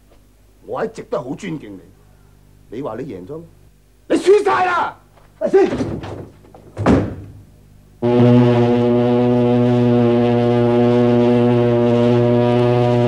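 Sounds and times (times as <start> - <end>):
ship's horn long deep blast: 8.0 - 13.0.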